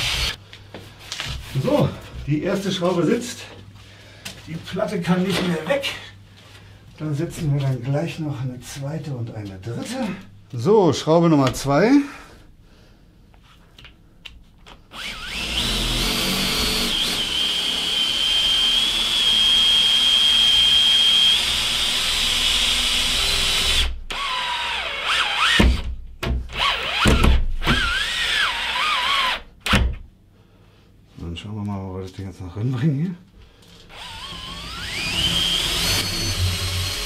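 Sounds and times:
cordless drill whining: 0.0 - 0.4, 14.9 - 25.8, 26.6 - 29.4, 33.8 - 37.0.

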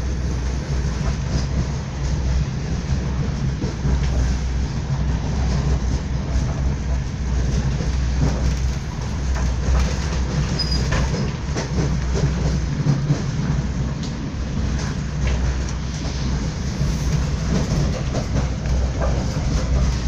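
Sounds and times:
train rumble: 0.0 - 20.0
wheels clicking on track: 0.7 - 20.0.

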